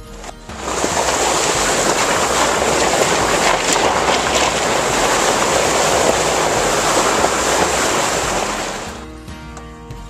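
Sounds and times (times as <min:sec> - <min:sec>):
tyre splashing through water: 0:00.0 - 0:09.0.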